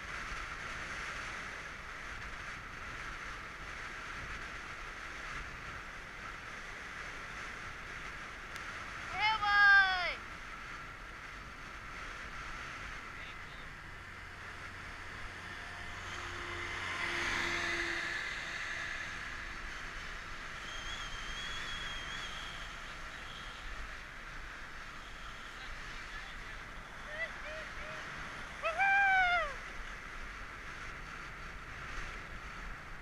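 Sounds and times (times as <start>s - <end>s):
bicycle tyre noise on asphalt: 0.0s - 33.0s
passing vehicle engine: 10.0s - 33.0s
wind rushing: 10.8s - 29.8s.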